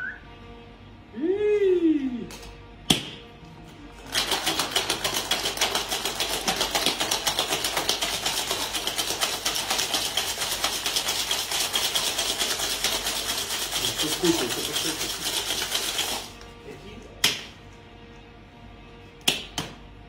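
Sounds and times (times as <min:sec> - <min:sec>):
metal cocktail shaker rattling: 0:04.0 - 0:16.4.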